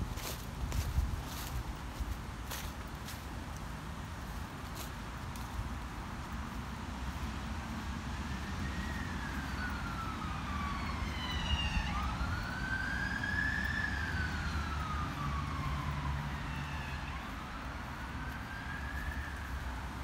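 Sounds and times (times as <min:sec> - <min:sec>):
emergency vehicle siren wailing: 0:07.8 - 0:20.0.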